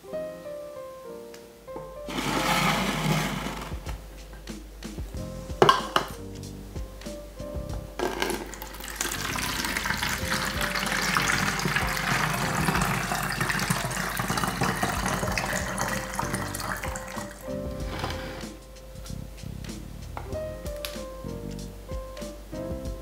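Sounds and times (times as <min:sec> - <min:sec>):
background music: 0:00.0 - 0:23.0
water pouring into bottle: 0:08.0 - 0:17.4.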